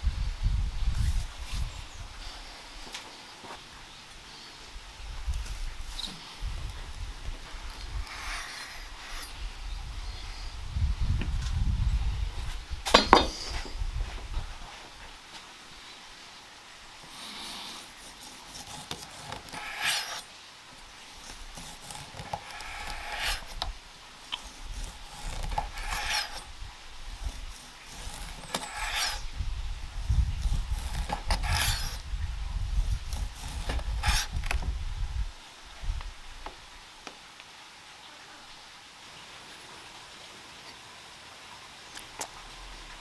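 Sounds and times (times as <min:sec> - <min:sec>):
knife slicing meat on wooden board: 0:24.4 - 0:26.5, 0:27.2 - 0:29.2, 0:30.4 - 0:32.0.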